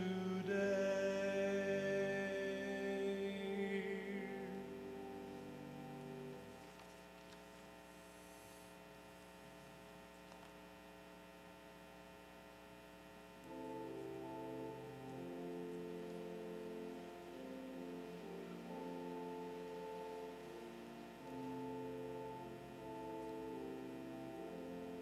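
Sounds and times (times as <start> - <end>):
person singing with vibrato: 0.0 - 5.8
held chords: 0.0 - 6.9, 13.4 - 25.0
low electrical hum: 0.0 - 25.0.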